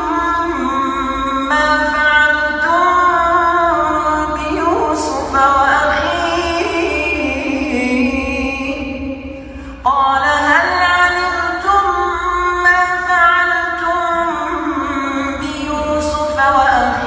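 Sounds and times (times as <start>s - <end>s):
man chanting melodically: 10.1s - 17.0s.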